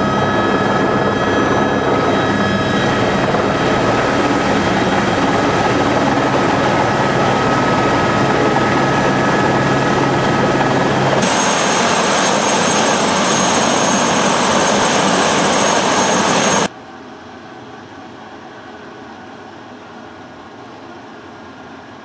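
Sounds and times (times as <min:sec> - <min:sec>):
helicopter turbine and rotor: 0:00.0 - 0:16.7
high whine: 0:00.0 - 0:16.7.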